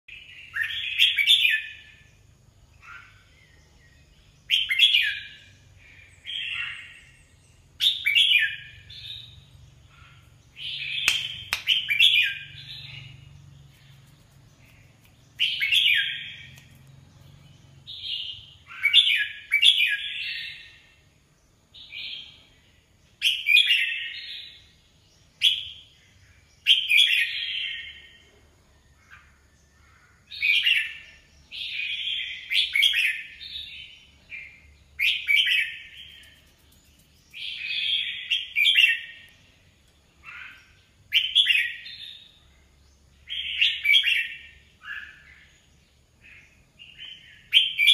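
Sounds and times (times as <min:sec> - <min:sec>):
bird singing warbled phrases: 0:00.0 - 0:47.9
sharp click: 0:11.0 - 0:11.9.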